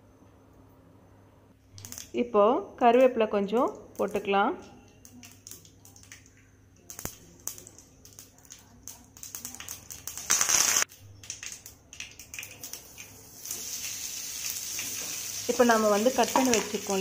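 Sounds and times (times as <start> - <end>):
seeds popping in oil: 1.7 - 2.2, 3.0 - 17.0
loud sizzle: 1.8 - 2.2, 5.0 - 17.0
oil crackling in frying pan: 5.0 - 17.0.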